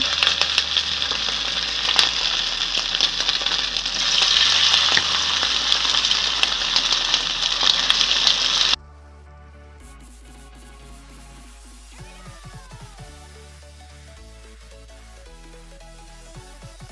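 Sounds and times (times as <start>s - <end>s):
fish frying in oil: 0.0s - 8.8s
oil crackling: 0.0s - 8.8s
faint music: 0.0s - 16.9s.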